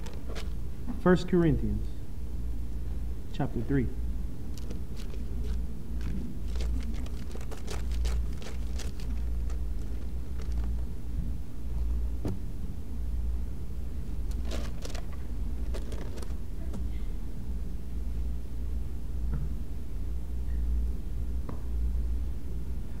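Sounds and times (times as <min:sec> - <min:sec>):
book pages turning and rustling: 0:00.0 - 0:00.6, 0:04.5 - 0:10.9, 0:14.2 - 0:16.4.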